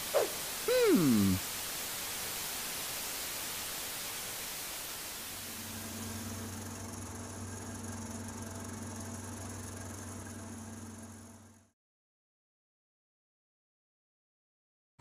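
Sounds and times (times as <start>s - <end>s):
television static hiss: 0.0s - 7.0s
low steady hum: 5.3s - 11.7s.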